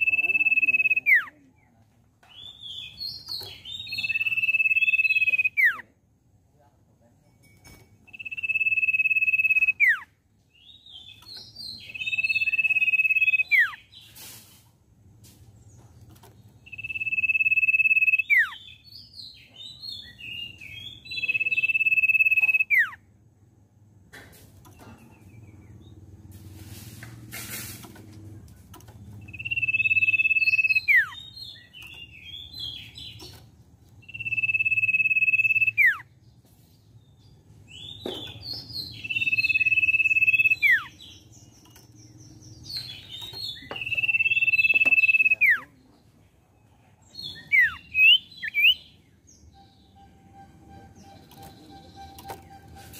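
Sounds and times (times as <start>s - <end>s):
bird whistling: 0.0s - 1.2s, 3.7s - 5.8s, 8.1s - 10.0s, 12.0s - 13.8s, 16.7s - 18.6s, 20.6s - 23.0s, 29.2s - 33.2s, 34.0s - 36.1s, 37.8s - 41.0s, 42.6s - 45.6s, 47.3s - 48.9s
brief hiss: 14.0s - 15.4s, 26.3s - 28.0s
bird chattering notes: 21.2s - 23.0s, 29.2s - 33.3s, 38.7s - 45.6s.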